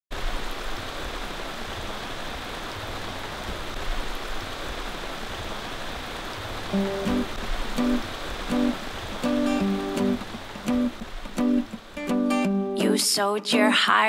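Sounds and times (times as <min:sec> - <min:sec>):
steady rain hiss: 0:00.1 - 0:14.0
plucked acoustic guitar note: 0:06.8 - 0:13.0.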